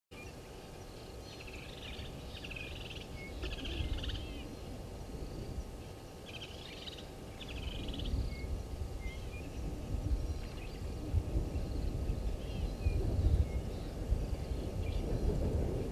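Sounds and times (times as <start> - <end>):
birds trilling: 0.2 - 15.8
low rumble: 0.7 - 15.9.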